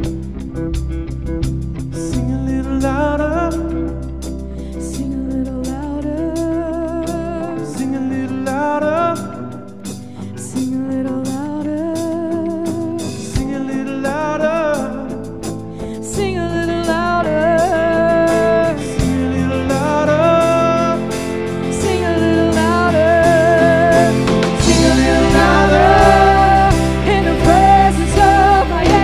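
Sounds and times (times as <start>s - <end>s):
acoustic guitar: 0.0s - 29.0s
electric guitar: 0.0s - 29.0s
keyboard: 0.0s - 29.0s
low bass notes: 0.0s - 29.0s
several singers: 17.2s - 29.0s.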